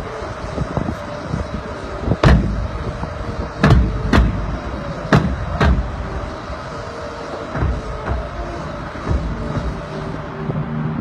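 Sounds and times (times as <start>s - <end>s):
wind rumble on microphone: 0.0s - 11.0s
bass drum and cymbal hits: 7.4s - 11.0s.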